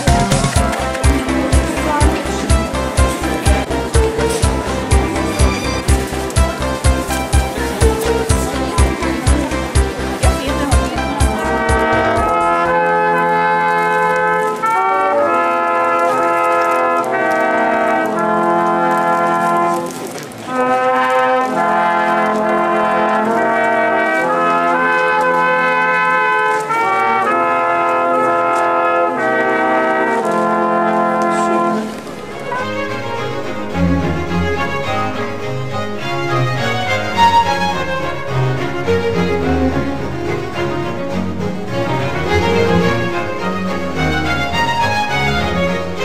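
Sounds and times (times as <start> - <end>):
brass quartet playing sustained chords: 0.0 - 46.0.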